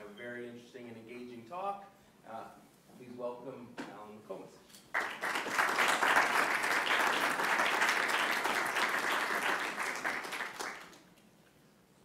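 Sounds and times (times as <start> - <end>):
audience applauding: 4.9 - 11.1.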